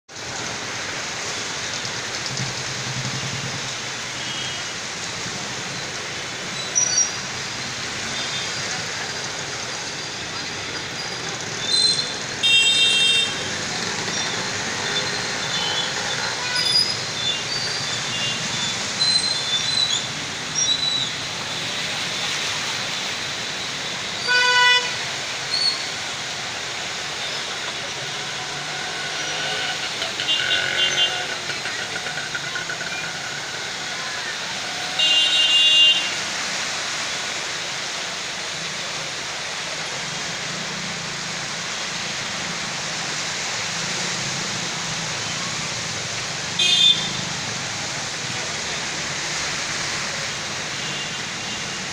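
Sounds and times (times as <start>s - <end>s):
vehicle engines: 0.1s - 51.9s
water splashing: 0.2s - 51.9s
vehicle horns honking: 11.7s - 13.5s, 24.2s - 25.0s, 28.1s - 31.4s, 34.8s - 36.2s, 46.6s - 47.2s.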